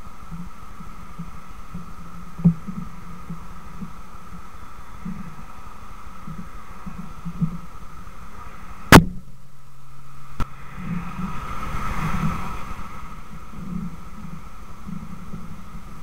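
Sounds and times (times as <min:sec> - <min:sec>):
car driving past: 0:09.8 - 0:14.9.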